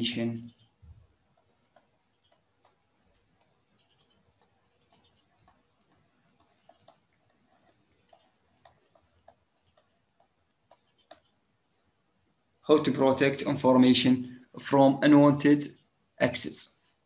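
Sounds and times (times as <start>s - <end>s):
stylus pen tapping on tablet: 1.3s - 11.3s.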